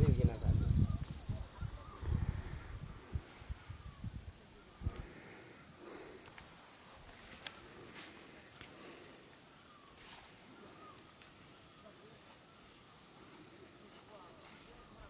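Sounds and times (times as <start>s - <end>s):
insect chorus droning: 0.0s - 15.0s
faint sharp clicks and rustles: 6.0s - 9.0s.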